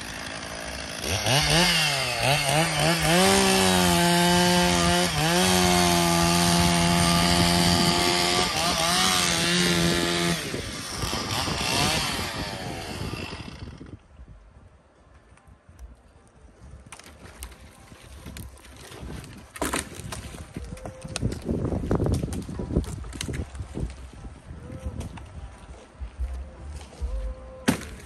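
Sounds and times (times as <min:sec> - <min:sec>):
small engine revving: 0:00.0 - 0:13.8.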